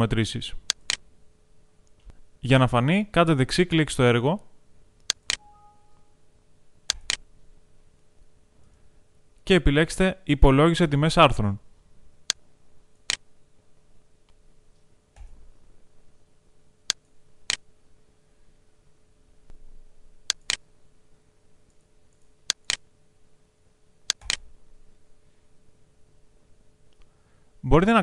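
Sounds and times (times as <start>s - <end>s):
faint steady hum: 0.0s - 28.0s
computer mouse clicking: 0.7s - 1.0s, 5.0s - 5.5s, 6.9s - 7.2s, 20.3s - 20.6s, 21.7s - 22.8s, 24.1s - 24.5s.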